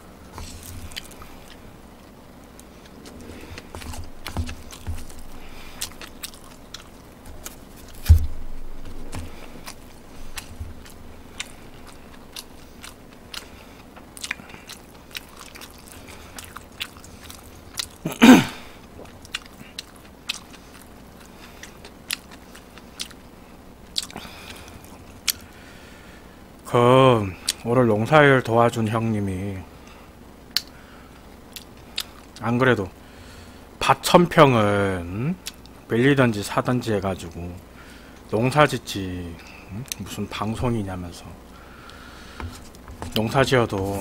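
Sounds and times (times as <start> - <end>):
person chewing food: 0.3 - 23.3, 23.9 - 25.6, 31.5 - 32.4, 41.7 - 44.0.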